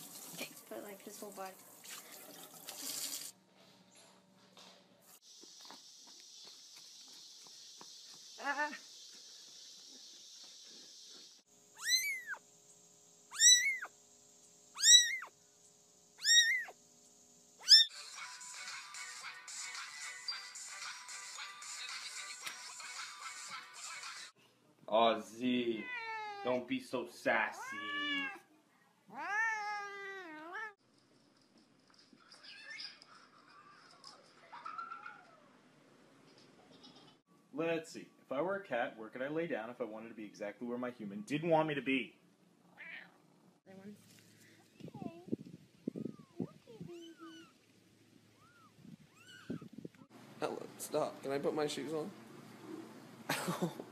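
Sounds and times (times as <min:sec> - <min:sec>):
kitten meowing: 0:11.8 - 0:12.4, 0:13.3 - 0:13.9, 0:14.8 - 0:15.3, 0:16.2 - 0:16.8, 0:17.6 - 0:17.9, 0:25.8 - 0:26.5, 0:27.6 - 0:28.4, 0:29.1 - 0:30.8, 0:46.0 - 0:47.5, 0:48.4 - 0:49.7.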